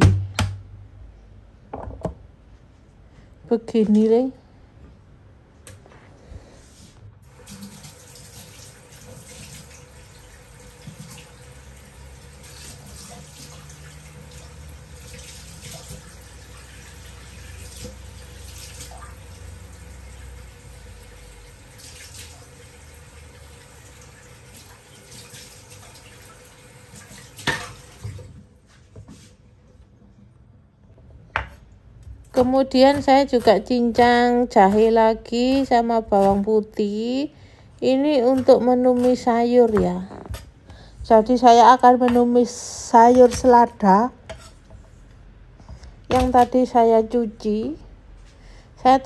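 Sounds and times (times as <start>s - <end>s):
tap water running into sink: 7.2s - 28.4s.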